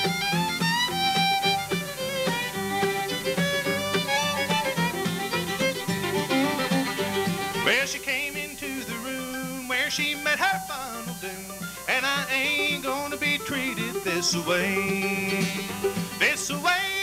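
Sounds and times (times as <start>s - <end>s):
upright bass: 0.0s - 7.8s
fiddle with sliding notes: 0.0s - 17.0s
mandolin: 0.0s - 17.0s
strummed acoustic guitar: 0.0s - 17.0s.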